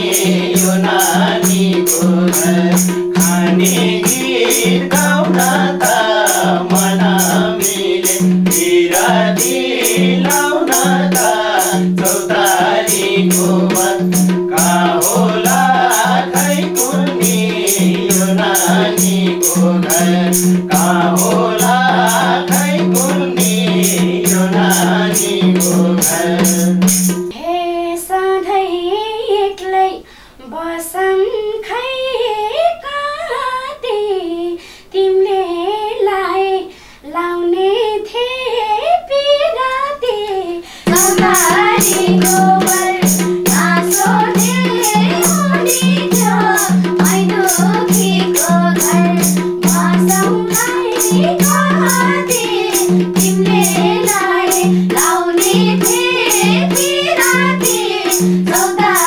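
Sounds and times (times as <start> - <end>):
men singing: 0.0 - 27.1, 40.9 - 59.0
hand drum beat: 0.0 - 27.3, 40.9 - 59.0
woman singing: 0.0 - 59.0.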